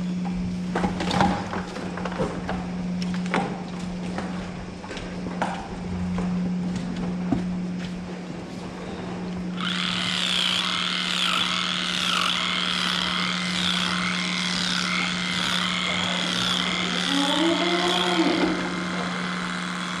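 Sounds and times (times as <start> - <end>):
low hum: 0.0 - 20.0
cow mooing: 14.4 - 19.2.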